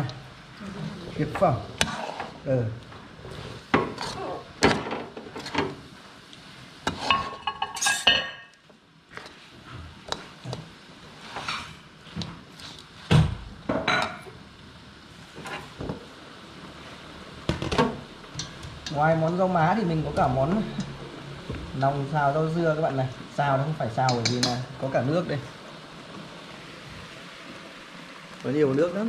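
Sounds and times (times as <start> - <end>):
metal ladle scraping wok: 1.8 - 2.4, 3.2 - 4.5.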